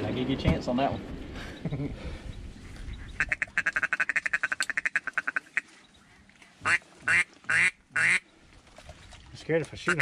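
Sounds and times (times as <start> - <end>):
duck call clucking: 3.0 - 5.6, 6.6 - 8.2.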